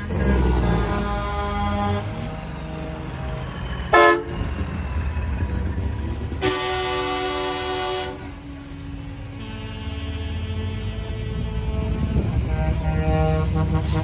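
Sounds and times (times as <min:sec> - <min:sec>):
passing diesel trucks rumbling: 0:00.0 - 0:14.0
truck air horn blasts: 0:00.6 - 0:04.6, 0:06.4 - 0:14.0.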